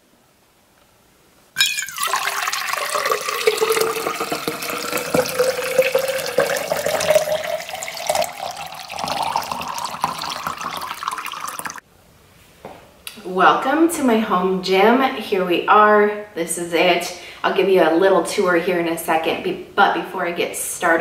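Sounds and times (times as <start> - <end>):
water pouring into metal tumbler: 1.6 - 11.8.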